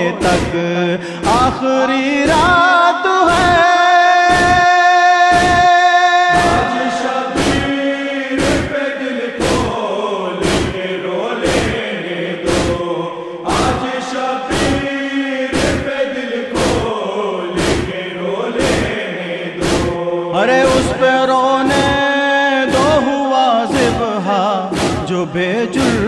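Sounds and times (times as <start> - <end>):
men chanting in unison: 0.0 - 26.0
hands beating on chests: 0.2 - 0.6, 1.2 - 1.6, 3.3 - 3.6, 4.3 - 6.7, 7.4 - 7.8, 8.4 - 8.8, 9.4 - 9.8, 10.4 - 10.8, 11.4 - 11.8, 12.5 - 12.8, 13.5 - 13.8, 14.5 - 14.8, 15.5 - 15.9, 16.6 - 16.9, 17.6 - 17.9, 18.6 - 18.9, 19.6 - 20.0, 21.6 - 22.0, 22.7 - 23.0, 23.7 - 24.0, 24.7 - 25.1, 25.7 - 26.0.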